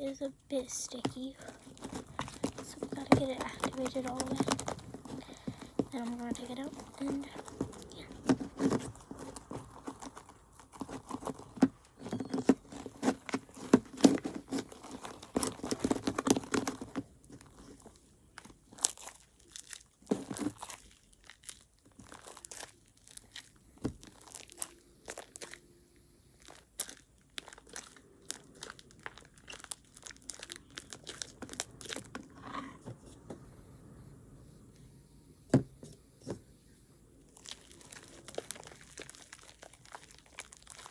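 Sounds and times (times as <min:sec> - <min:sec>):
slime wet crackles and pops: 0:37.3 - 0:40.9.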